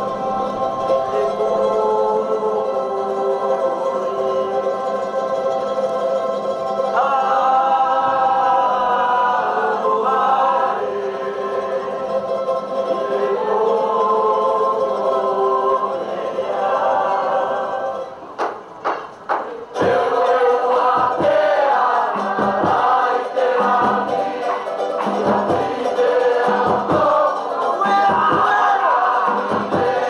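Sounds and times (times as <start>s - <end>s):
group singing in harmony: 0.0s - 30.0s
sharp knocks: 18.4s - 20.0s.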